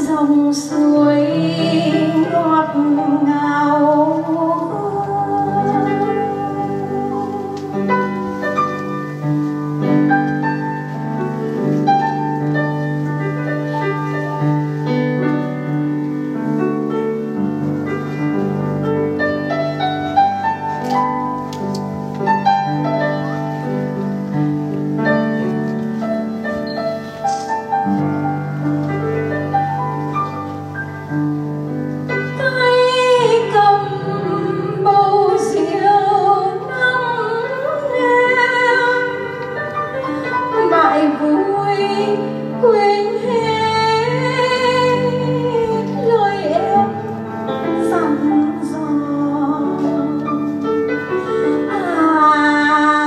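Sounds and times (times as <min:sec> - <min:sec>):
woman singing: 0:00.0 - 0:08.4, 0:32.2 - 0:53.0
grand piano playing slowly: 0:00.0 - 0:53.0.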